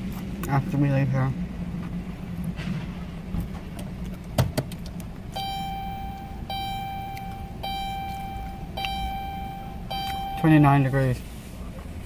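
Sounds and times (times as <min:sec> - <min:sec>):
low hum: 0:00.0 - 0:12.0
car warning chime: 0:05.3 - 0:11.1.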